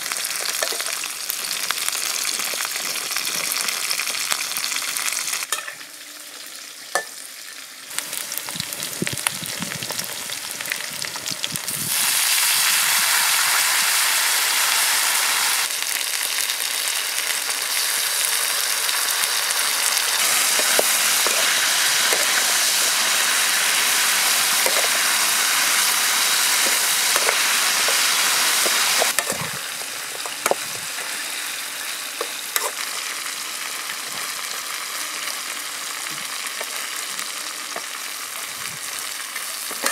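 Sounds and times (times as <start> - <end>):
meat and vegetables sizzling: 0.0 - 39.9
metal spatula scraping a wok: 20.4 - 22.4, 26.5 - 29.6, 32.2 - 32.8.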